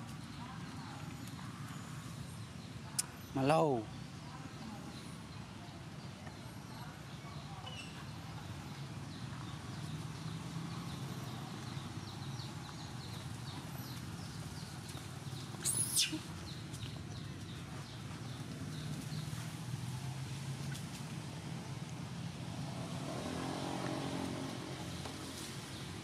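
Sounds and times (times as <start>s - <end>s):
monkey squealing: 15.6s - 16.3s.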